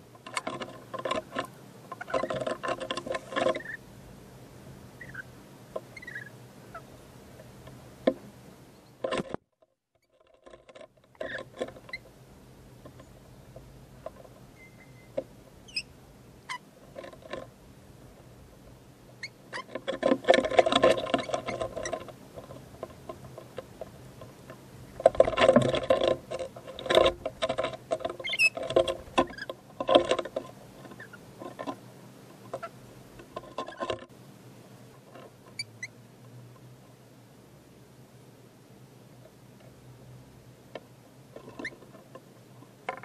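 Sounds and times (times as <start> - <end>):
beaks clicking and scratching: 0.2 - 3.8, 5.0 - 6.8, 19.2 - 31.8
short high bird chirps: 14.6 - 15.9.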